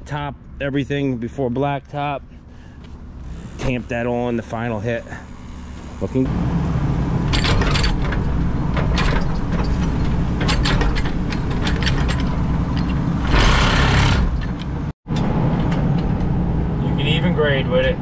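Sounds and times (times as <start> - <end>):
excavator diesel engine: 0.0 - 18.0
metallic clanks and knocks: 7.3 - 16.4.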